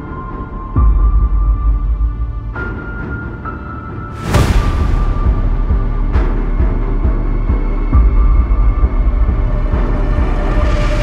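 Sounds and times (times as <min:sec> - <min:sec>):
dark dramatic soundtrack music: 0:00.0 - 0:11.0
deep hit: 0:04.1 - 0:07.4.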